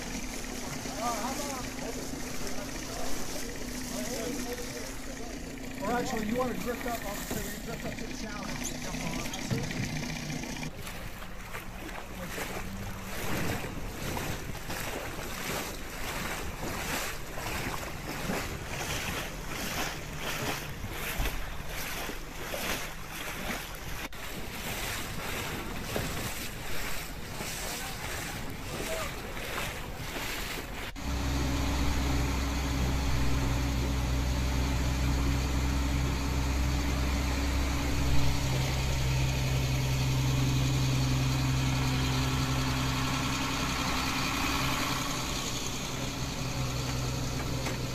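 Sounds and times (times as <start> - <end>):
low engine drone: 0.0 - 47.9
rush of wind and water: 10.7 - 47.9.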